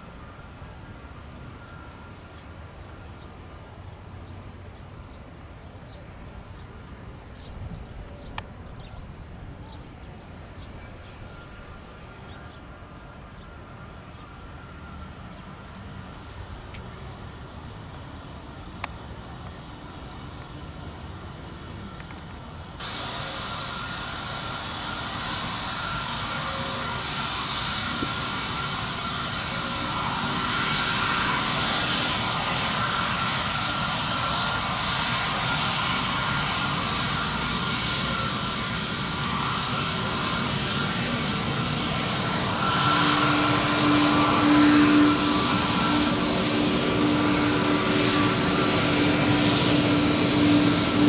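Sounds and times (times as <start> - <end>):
jet engines rumbling: 0.0 - 51.0.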